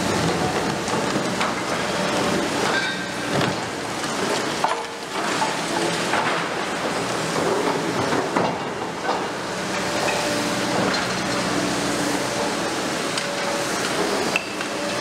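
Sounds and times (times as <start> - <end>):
excavator engine and hydraulics: 0.0 - 15.0.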